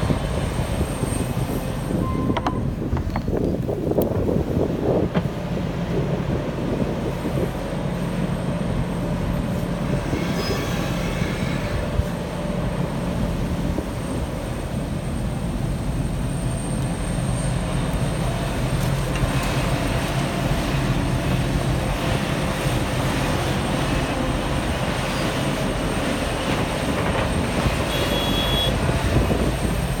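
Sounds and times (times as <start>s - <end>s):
excavator engine and hydraulics: 0.0s - 30.0s
brief high squeals: 10.1s - 11.8s.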